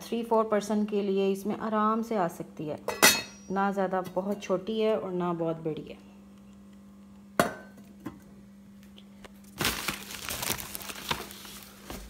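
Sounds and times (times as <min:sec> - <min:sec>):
faint steady hum: 0:00.0 - 0:12.0
metal lid clink: 0:02.9 - 0:03.4
packaging rustling in cardboard box: 0:09.4 - 0:12.0.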